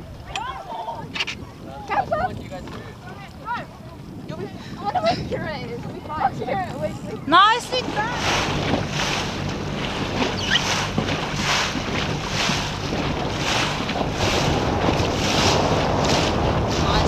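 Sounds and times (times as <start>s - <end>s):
choppy water slapping boat hull: 0.0s - 17.0s
wind buffeting microphone: 0.0s - 17.0s
low steady hum: 6.0s - 17.0s.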